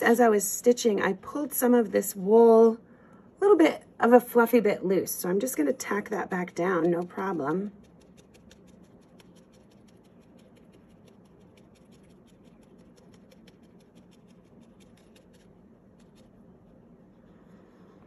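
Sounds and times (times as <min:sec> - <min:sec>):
felting needle jabbing wool: 0:06.4 - 0:16.9.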